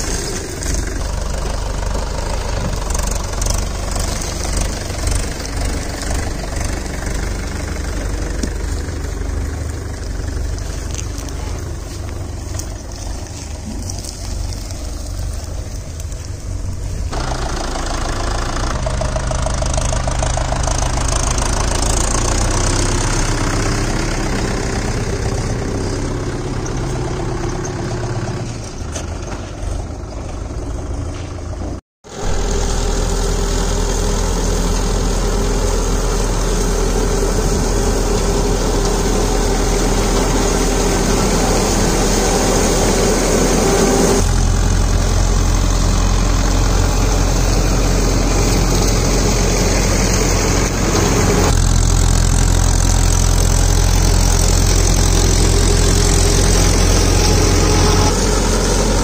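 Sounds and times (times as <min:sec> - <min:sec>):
tractor diesel engine running: 0:00.0 - 0:59.0
rotor chopping dry cane trash: 0:08.0 - 0:17.3.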